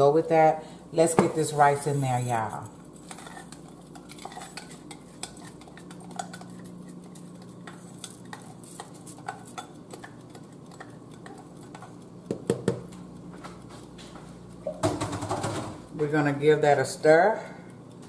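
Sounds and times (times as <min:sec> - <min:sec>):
low steady hum: 0:00.0 - 0:18.0
utensils clicking on glass bowl: 0:03.0 - 0:13.0.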